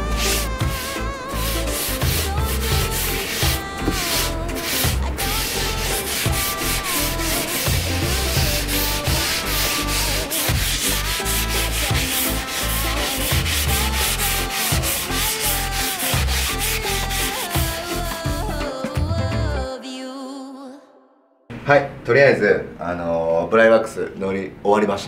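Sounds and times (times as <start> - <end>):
cloth pad scrubbing wood: 0.0 - 18.0
background music: 0.0 - 21.4.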